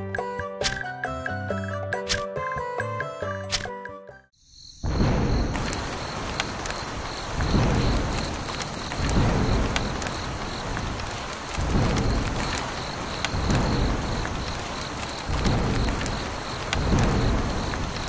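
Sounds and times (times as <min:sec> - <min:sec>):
low thunder rolls: 0:04.8 - 0:18.0
steady rain hiss: 0:05.0 - 0:18.0.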